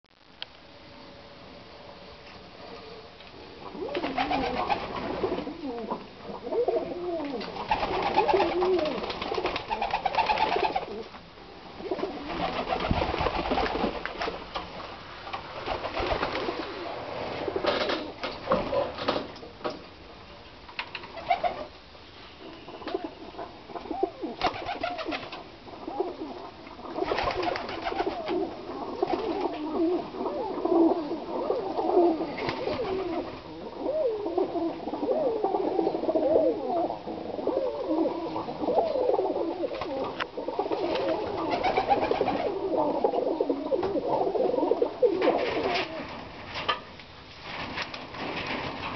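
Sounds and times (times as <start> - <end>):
pigeons cooing: 2.8 - 14.1, 22.4 - 46.2.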